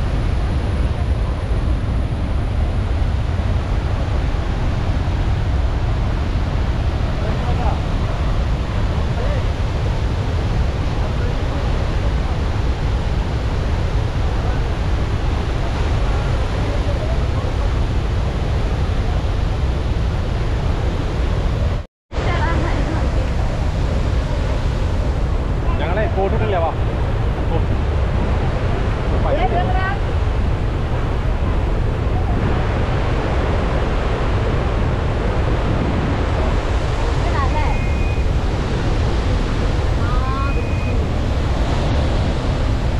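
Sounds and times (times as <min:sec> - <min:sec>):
waterfall rushing: 0:19.0 - 0:42.9.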